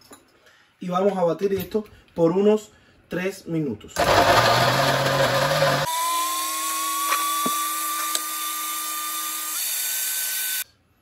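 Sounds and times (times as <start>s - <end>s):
electric blender running: 4.0s - 10.6s.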